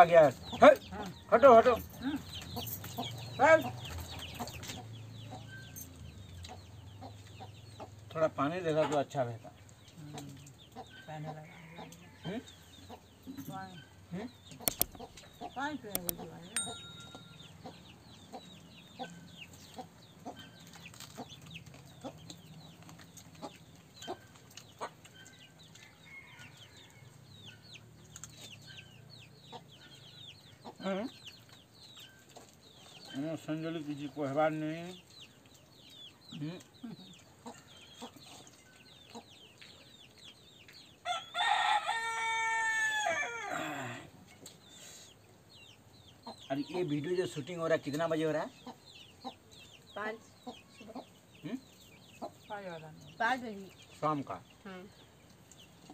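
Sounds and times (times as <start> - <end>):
chickens clucking and cheeping: 0.0 - 55.9
light clicks: 14.6 - 15.0
rooster crowing: 41.0 - 44.1.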